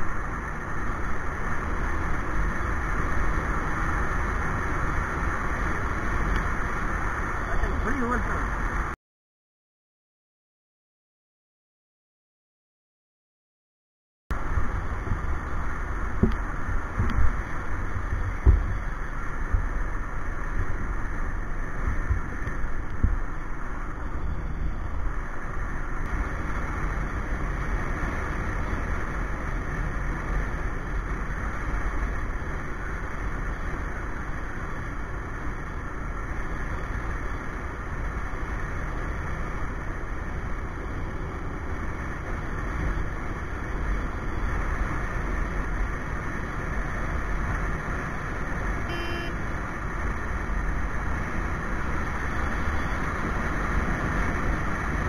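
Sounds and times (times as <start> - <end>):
motorcycle engine rumble: 0.0 - 9.0, 14.3 - 55.0
tyres on road: 0.0 - 9.0, 14.3 - 55.0
wind rushing over microphone: 14.3 - 55.0.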